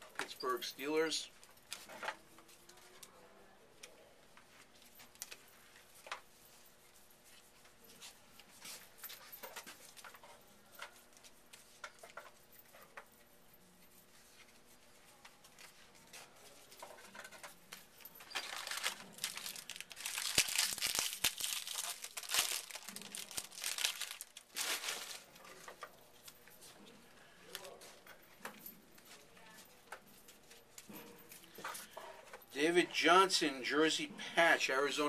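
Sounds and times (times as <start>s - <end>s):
wrappers crinkling and tearing: 18.2s - 25.7s
cards rustling and ticking: 18.2s - 25.8s.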